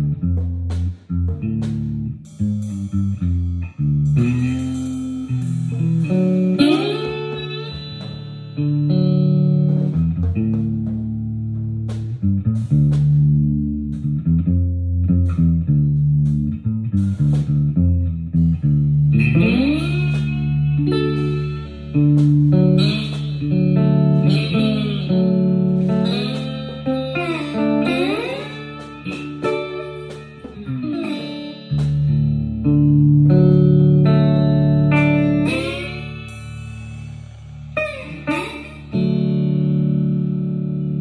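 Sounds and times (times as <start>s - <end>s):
electric guitar jam: 0.0s - 41.0s
drums with cymbal hits: 0.2s - 14.2s, 19.2s - 32.4s, 34.1s - 39.4s.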